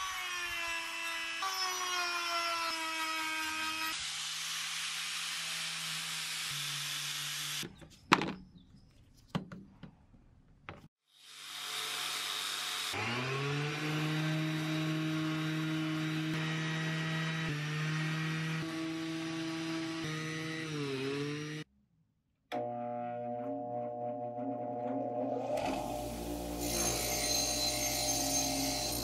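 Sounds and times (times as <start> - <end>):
rotary tool grinding steel: 0.0 - 7.6, 24.3 - 29.0
orbital sander running: 13.0 - 21.6.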